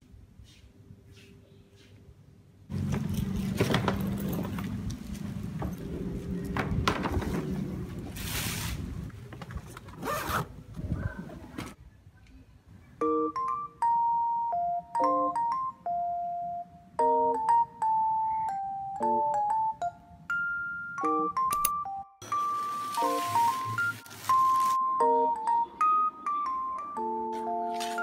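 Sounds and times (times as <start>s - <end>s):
bell-like mallet melody: 13.0s - 27.8s
plastic wrapping crinkling: 22.2s - 24.8s.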